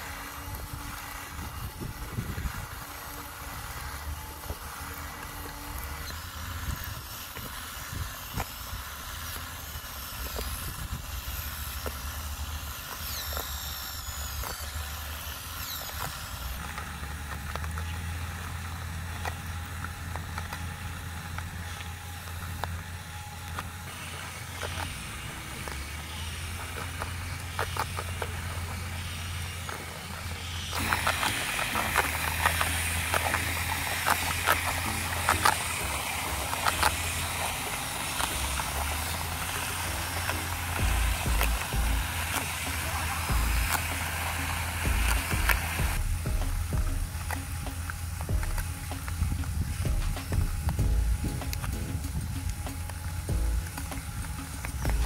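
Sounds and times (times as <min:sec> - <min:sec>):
sand falling clicks: 0:00.0 - 0:55.0
sand scraping and crackling: 0:00.0 - 0:55.0
small motors whirring: 0:00.0 - 0:55.0.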